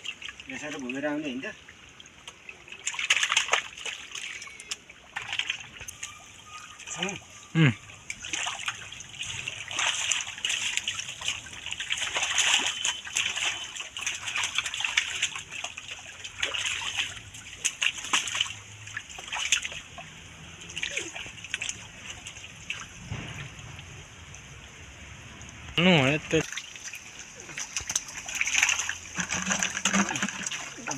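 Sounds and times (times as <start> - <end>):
water splashing with fish: 0.0 - 30.9
heavy splash: 2.7 - 4.4, 8.1 - 24.2, 26.4 - 30.9.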